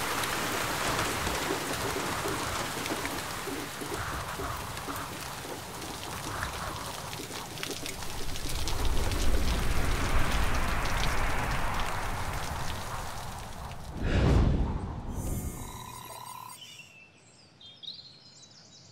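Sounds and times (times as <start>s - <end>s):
rain falling on surface: 0.0s - 14.0s.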